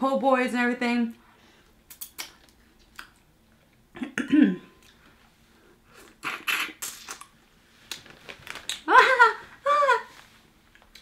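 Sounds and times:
woman coughing: 4.0 - 4.7.

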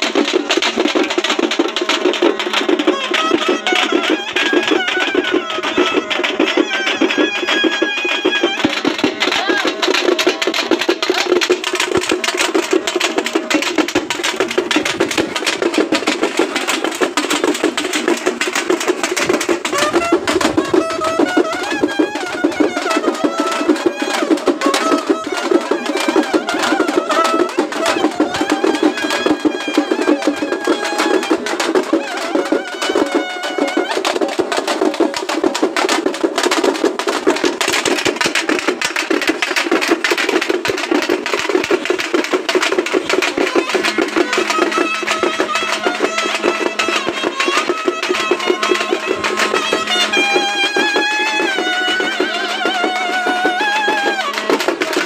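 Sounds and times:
fast continuous drumming: 0.0 - 55.0.

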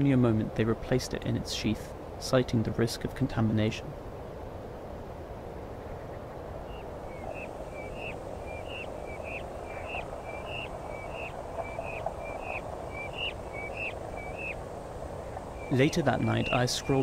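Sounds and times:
outdoor ambient hiss: 0.0 - 17.0
bird calling: 5.8 - 17.0.

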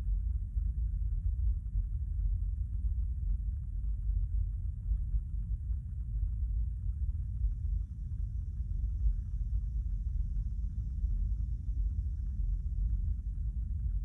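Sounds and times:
low rumble inside car: 0.0 - 14.0.

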